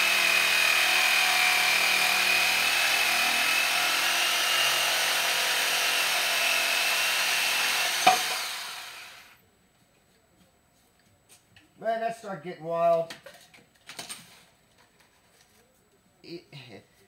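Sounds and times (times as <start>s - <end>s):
power tool whining: 0.0s - 9.4s.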